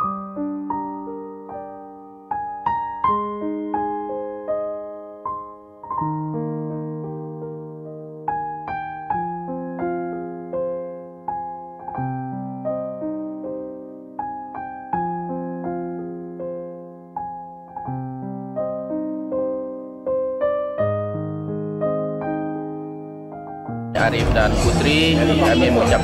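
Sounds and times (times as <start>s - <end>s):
slow gentle piano music: 0.0s - 26.0s.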